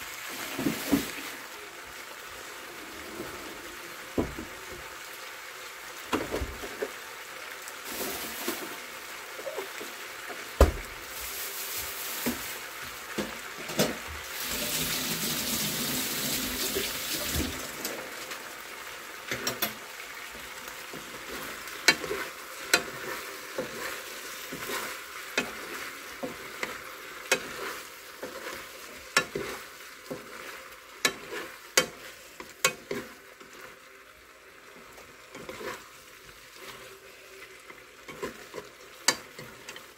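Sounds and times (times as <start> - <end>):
food sizzling in a frying pan: 0.0 - 39.9
spoon and chopsticks scraping pan: 20.9 - 33.7, 35.0 - 37.0, 37.7 - 39.9.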